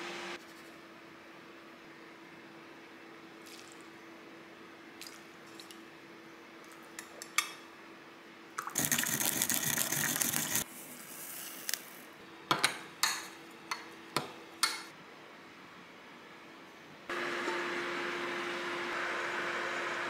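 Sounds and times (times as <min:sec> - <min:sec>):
liquid pouring into glass bowl: 0:08.6 - 0:10.6
sesame grinder crunching: 0:08.8 - 0:10.6.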